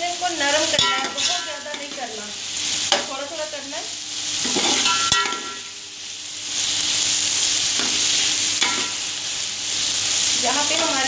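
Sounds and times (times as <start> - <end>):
food sizzling in oil: 0.0 - 11.0
metal spatula scraping pot: 0.8 - 1.9.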